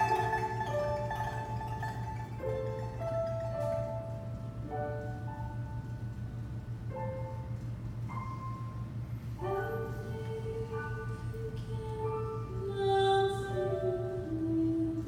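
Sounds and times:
pipa notes: 0.0s - 4.7s
low hum: 0.0s - 15.0s.

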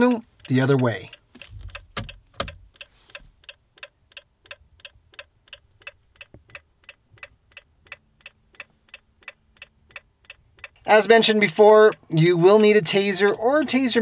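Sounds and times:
turn signal ticking: 0.0s - 14.0s.

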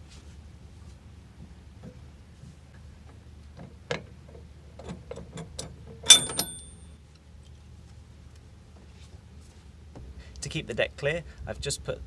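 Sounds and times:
metal clank with ring: 6.1s - 6.9s.

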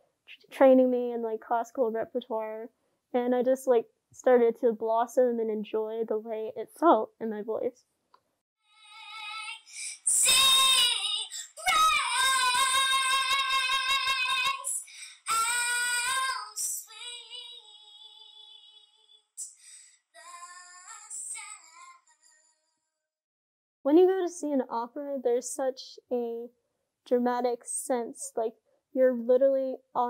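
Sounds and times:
girl singing with vibrato: 8.7s - 22.5s.

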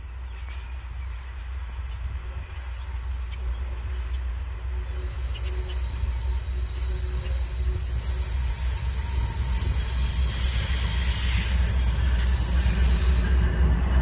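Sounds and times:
freight train rumble: 0.0s - 14.0s.

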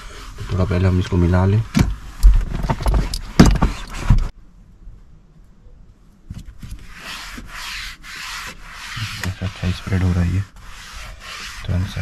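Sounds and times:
foam pad scrubbing plastic: 6.8s - 12.0s.

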